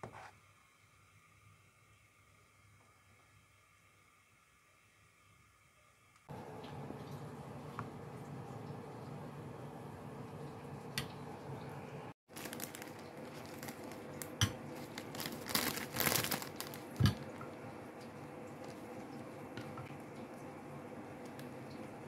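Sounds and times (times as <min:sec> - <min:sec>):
plastic bag crinkling: 0:12.3 - 0:17.6, 0:18.6 - 0:19.1.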